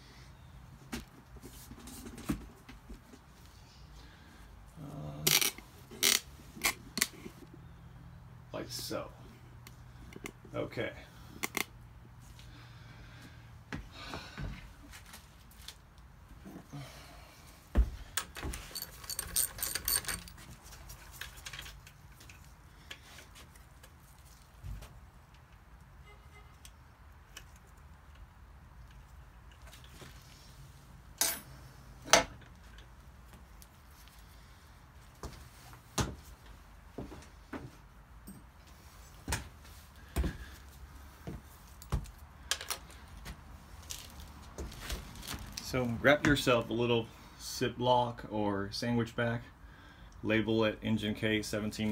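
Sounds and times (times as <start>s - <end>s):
small metal parts clinking: 18.2s - 22.4s.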